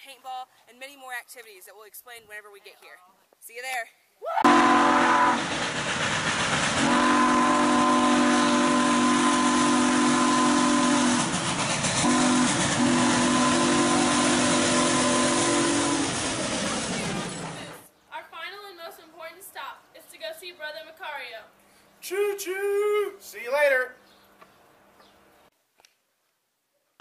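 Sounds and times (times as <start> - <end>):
steam locomotive chime whistle: 4.4 - 5.6, 6.7 - 16.6
loud hiss of steam: 4.6 - 17.6.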